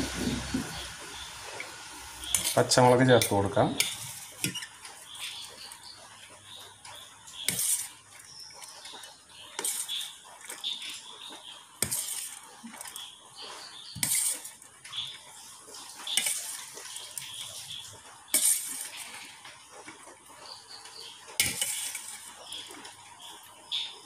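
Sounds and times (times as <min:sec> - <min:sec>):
clattering scrapes against bowl: 0:07.5 - 0:07.9, 0:14.0 - 0:14.5, 0:18.3 - 0:19.3, 0:21.4 - 0:22.3.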